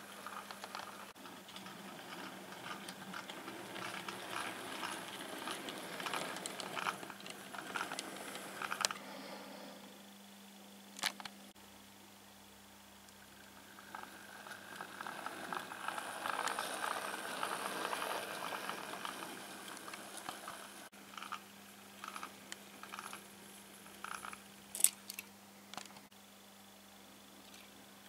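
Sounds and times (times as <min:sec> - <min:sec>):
model train wheels clicking: 0:00.0 - 0:09.0, 0:13.4 - 0:21.4, 0:22.0 - 0:25.2
faint steady hum: 0:00.0 - 0:28.0.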